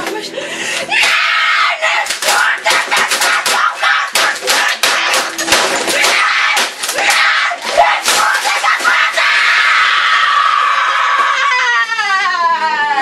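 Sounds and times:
boy screaming: 7.0s - 13.0s.

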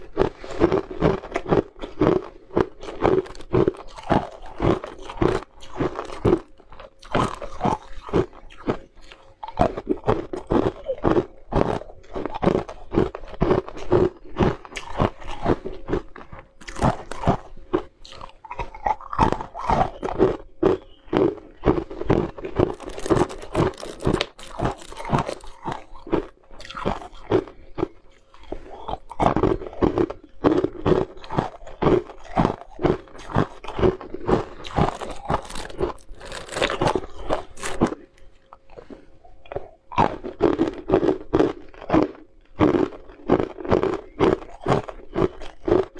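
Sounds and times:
ice cubes crunching between teeth: 0.0s - 45.9s.

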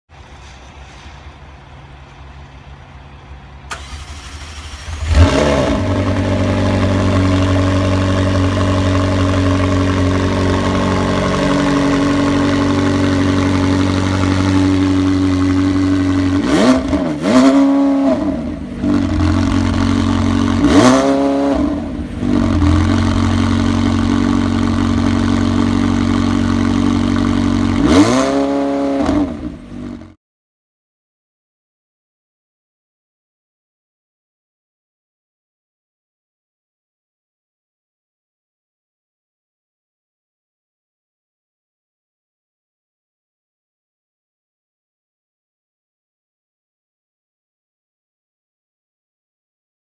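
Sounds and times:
car engine starting and idling: 0.2s - 30.2s
engine revving: 3.7s - 30.2s.

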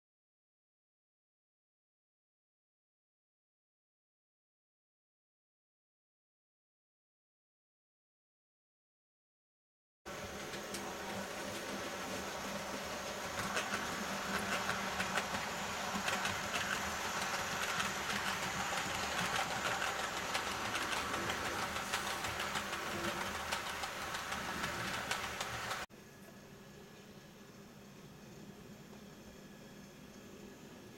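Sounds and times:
model train running hum: 10.1s - 25.9s
wheels clicking over track: 10.1s - 25.9s.

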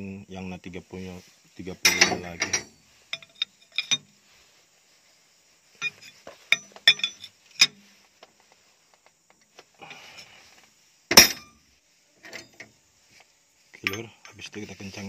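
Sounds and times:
faint scuffing: 0.9s - 15.0s
spanner clinking on metal nut: 1.8s - 4.0s, 5.8s - 7.8s, 11.1s - 11.5s.

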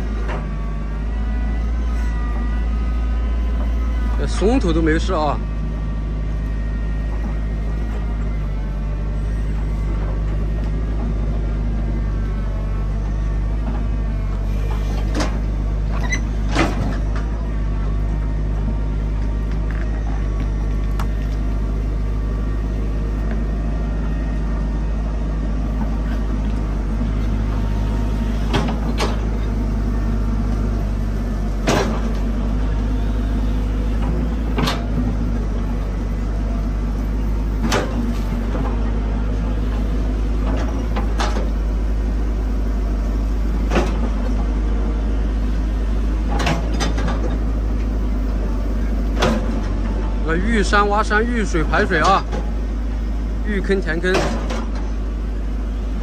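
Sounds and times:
excavator diesel engine running: 0.0s - 56.0s
excavator bucket clanks: 54.1s - 54.9s.

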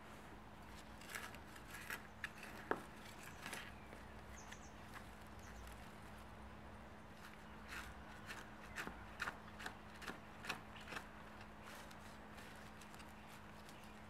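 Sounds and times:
trowel scraping soil: 0.6s - 3.8s, 7.2s - 14.0s
hands rustling soil: 9.6s - 14.0s.

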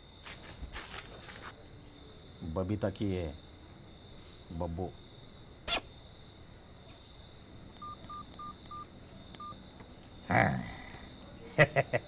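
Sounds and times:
crickets chirping: 0.0s - 12.0s
phone keypad beeps: 7.8s - 9.6s.

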